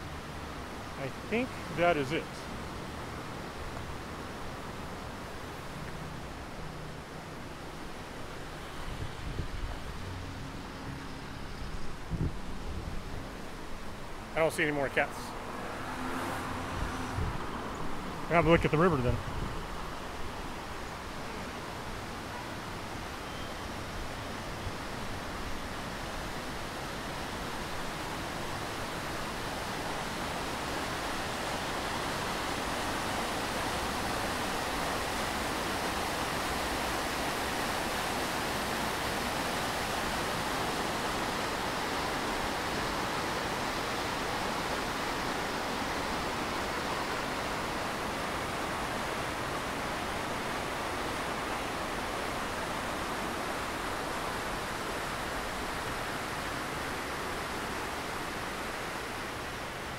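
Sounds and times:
water rushing over rocks: 0.0s - 10.8s, 24.0s - 59.9s.

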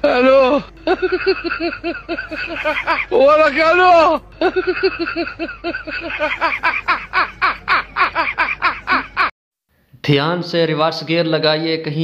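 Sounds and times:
high-pitched laughter: 0.8s - 3.7s, 4.4s - 9.3s.

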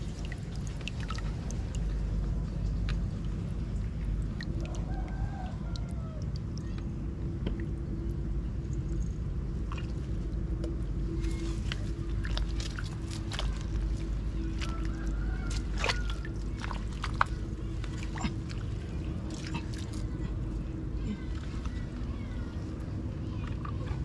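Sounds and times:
constant hum: 0.0s - 24.0s
low rumble: 0.0s - 24.0s
rooster crowing: 4.6s - 6.2s, 14.6s - 16.3s.

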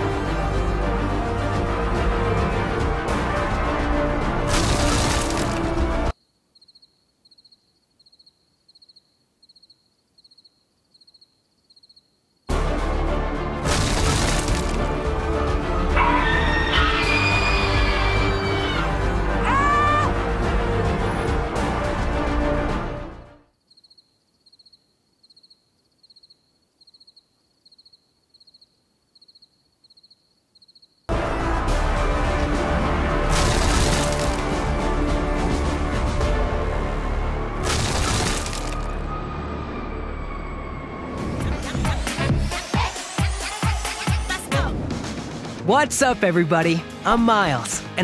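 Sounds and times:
music: 0.0s - 6.1s, 12.5s - 23.5s, 31.1s - 48.0s
cricket chirping: 6.1s - 12.5s, 23.5s - 31.1s.

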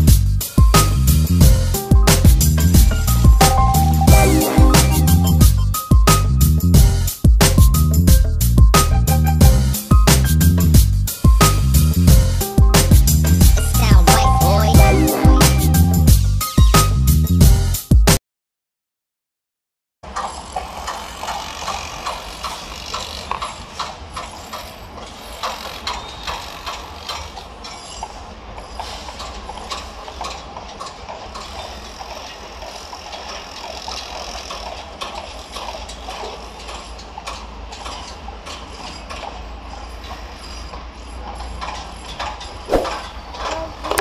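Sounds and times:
low rumble: 0.0s - 16.4s.

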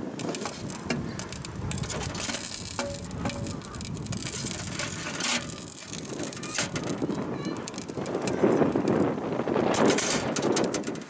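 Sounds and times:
steady background noise: 0.0s - 11.0s
metal tongs scraping grill rack: 0.3s - 7.0s, 9.7s - 11.0s.

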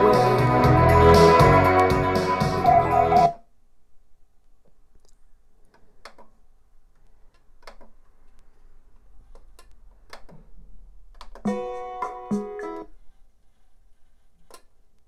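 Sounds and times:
guitar music from speakers: 0.0s - 3.3s, 11.5s - 12.9s.

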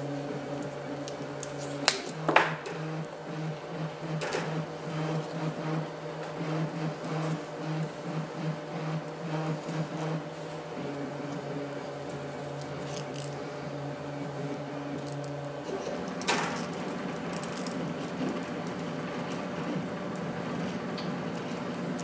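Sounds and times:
machine hum: 0.0s - 22.0s
wires rustling and ticking: 14.9s - 22.0s.

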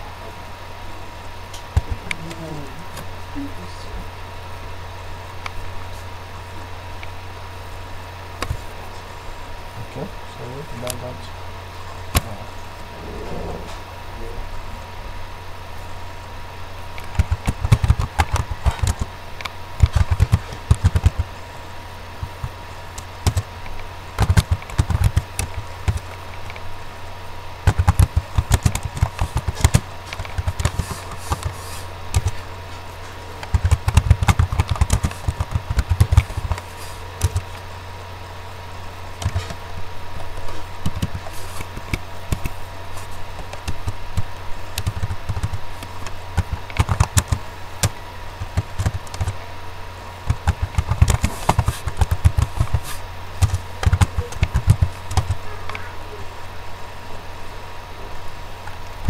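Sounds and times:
low electrical hum: 0.0s - 59.0s
keyboard typing: 33.5s - 36.6s, 44.8s - 45.6s, 46.4s - 47.4s, 48.6s - 49.4s, 50.3s - 55.4s.

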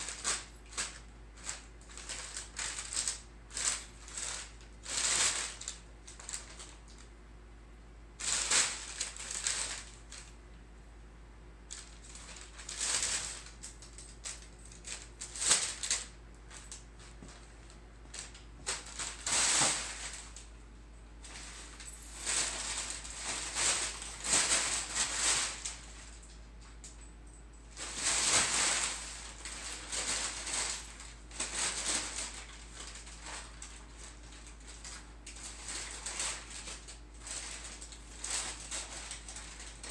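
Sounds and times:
packing paper crinkling: 0.0s - 7.0s, 8.2s - 10.4s, 11.7s - 20.5s, 21.2s - 26.4s, 27.8s - 39.9s.

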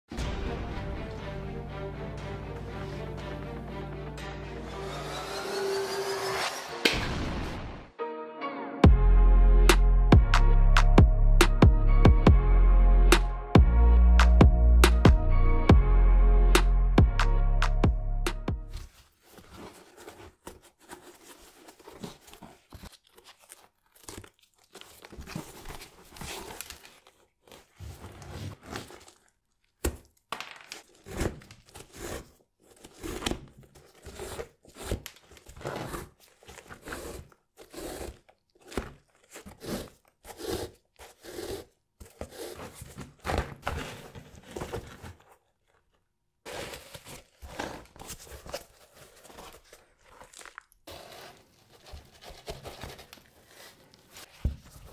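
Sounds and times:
crinkling and scraping handling noises: 18.7s - 54.9s.

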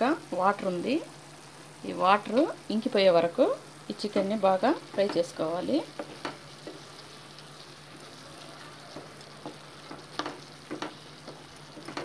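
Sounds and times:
chicken sizzling in hot oil: 0.0s - 12.0s
spatula scraping and knocking pan: 5.9s - 6.9s, 8.8s - 12.0s.

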